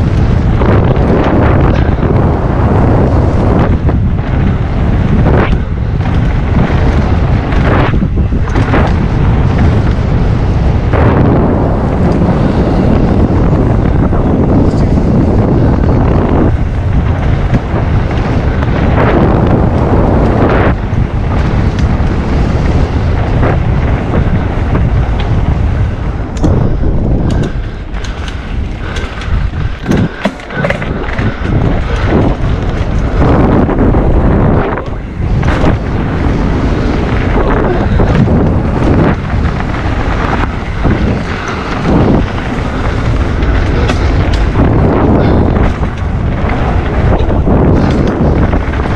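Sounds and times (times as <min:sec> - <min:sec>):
tyres rumbling on trail: 0:00.0 - 0:48.9
wind buffeting microphone: 0:00.0 - 0:48.9
bike clattering knocks: 0:27.2 - 0:33.2, 0:40.9 - 0:48.9.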